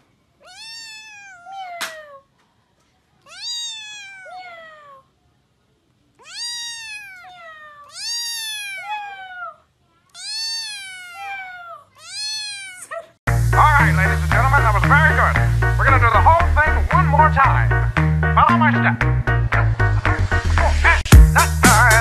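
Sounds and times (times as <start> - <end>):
kitten meowing: 0.4 - 2.2, 3.3 - 5.0, 6.2 - 13.1.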